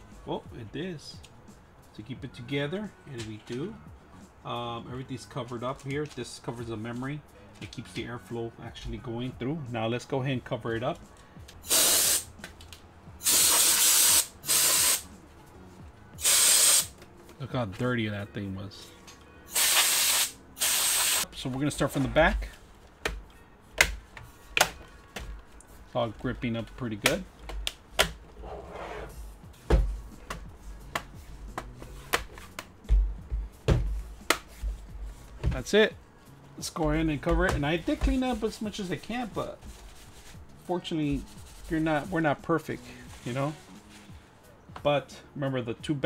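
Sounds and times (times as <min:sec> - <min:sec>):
compressed air bursts: 0:11.6 - 0:12.3, 0:13.2 - 0:15.1, 0:16.2 - 0:17.0, 0:19.5 - 0:21.3.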